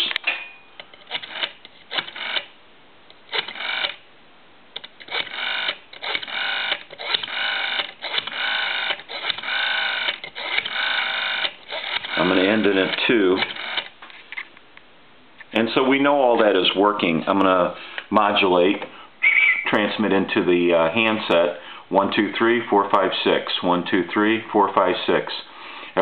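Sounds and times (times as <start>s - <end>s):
telephone rotary dial clicking: 0.8s - 2.5s, 3.3s - 4.0s, 4.8s - 14.0s.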